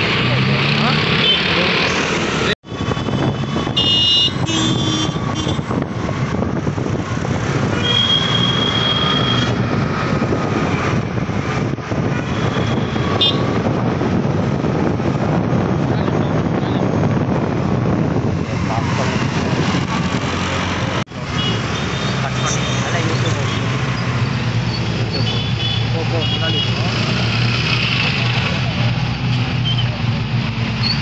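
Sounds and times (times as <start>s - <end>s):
dense road traffic: 0.0s - 31.0s
car horns honking: 3.6s - 5.7s, 7.8s - 9.6s, 12.2s - 13.6s, 21.3s - 23.7s, 24.7s - 26.9s.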